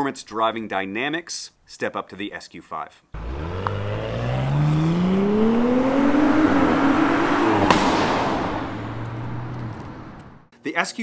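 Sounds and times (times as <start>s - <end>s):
car engine accelerating hard: 3.2s - 10.5s
exhaust crack at upshift: 3.2s - 10.5s.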